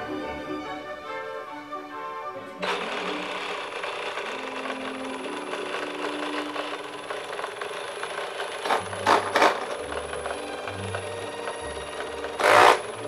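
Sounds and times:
small electric motor buzzing: 2.6 - 13.0.

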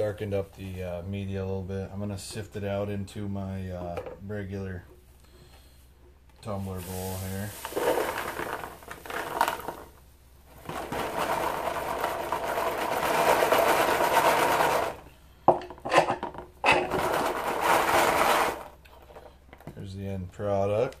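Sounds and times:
bullets and media rattling in sifter: 6.8 - 9.9, 10.5 - 15.1, 16.7 - 19.4.

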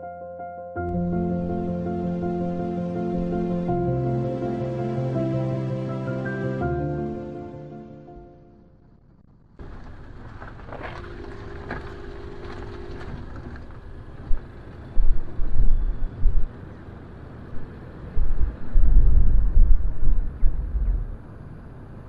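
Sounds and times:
vehicle traffic: 9.6 - 22.0
wind rumbling on microphone: 9.6 - 22.0.

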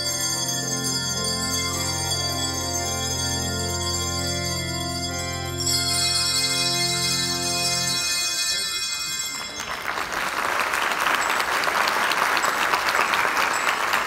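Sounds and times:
handbell chord: 0.0 - 10.2
audience applause: 9.3 - 14.0.

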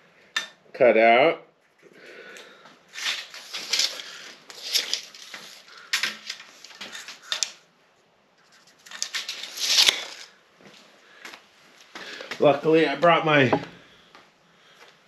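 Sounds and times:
scraping and rustling: 2.9 - 7.6, 8.4 - 10.4.

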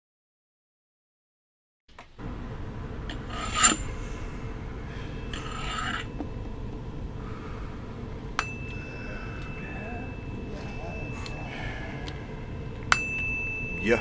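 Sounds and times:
low rumbling hiss: 2.0 - 14.0
rasping scraping swells: 3.1 - 12.8
steady high beep: 8.4 - 14.0.

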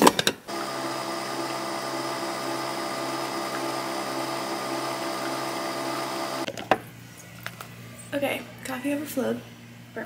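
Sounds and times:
coffee machine pump humming: 0.5 - 6.5.

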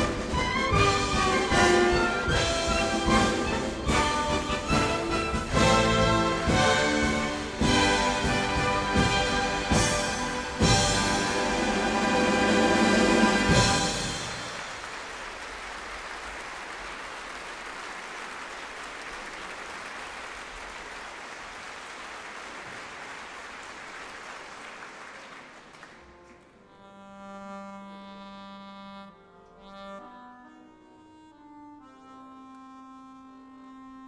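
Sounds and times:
audience applauding: 9.5 - 26.6
button accordion chords: 26.6 - 34.0.

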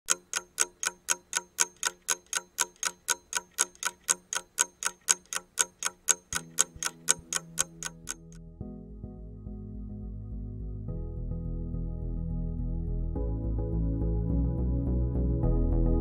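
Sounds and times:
rapid even ticking: 0.0 - 8.4
soft sustained music chord: 8.4 - 16.0.

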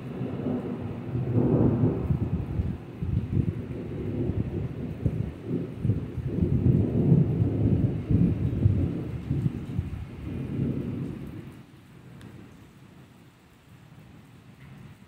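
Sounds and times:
rolling thunder: 0.0 - 11.6
steady rain: 0.0 - 15.0.

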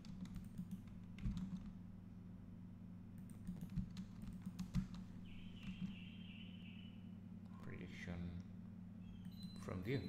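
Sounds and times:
computer keyboard keystrokes: 0.0 - 1.8, 3.2 - 5.0, 5.6 - 5.9
steady low hum: 0.0 - 10.0
faint high steady tone: 5.2 - 7.3.

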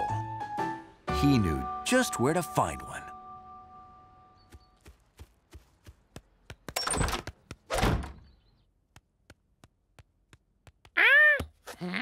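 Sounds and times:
cartoon footsteps: 4.5 - 12.0
door opening and shutting: 6.8 - 8.3.

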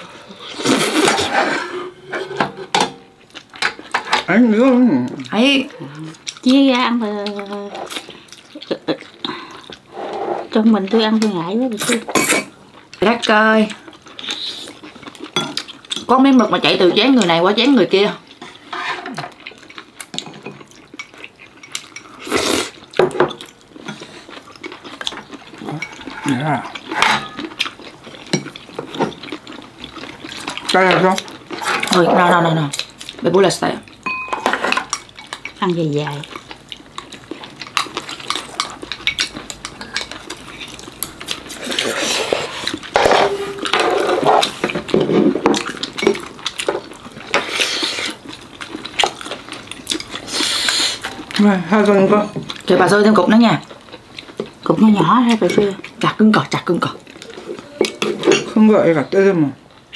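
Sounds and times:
chopsticks and spoons clinking on bowls: 15.0 - 17.7, 18.4 - 22.3, 23.0 - 33.2, 33.9 - 47.5, 54.3 - 59.0
chopsticks clinking against bowls: 34.0 - 35.6.

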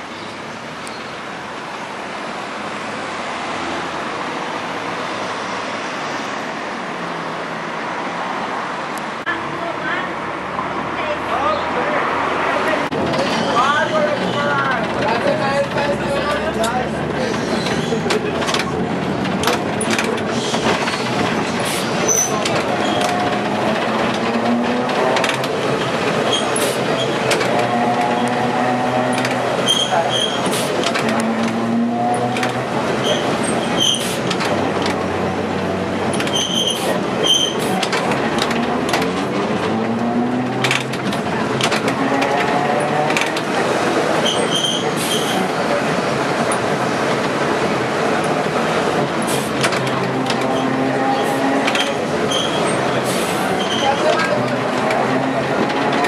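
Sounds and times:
tram rumbling and rattling: 0.0 - 56.0
high squeak: 29.6 - 30.7, 33.1 - 34.2, 36.2 - 37.8, 44.2 - 45.5, 50.5 - 54.3.

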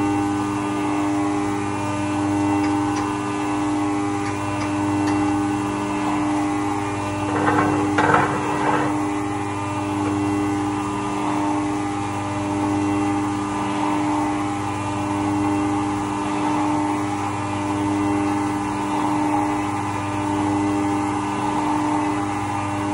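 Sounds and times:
mill spindle whining: 0.0 - 22.9
end mill cutting metal: 2.3 - 11.1.

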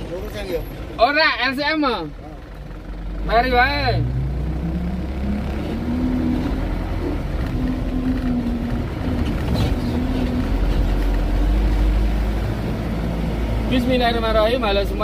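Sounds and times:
truck engine rumble inside cab: 0.0 - 15.0.

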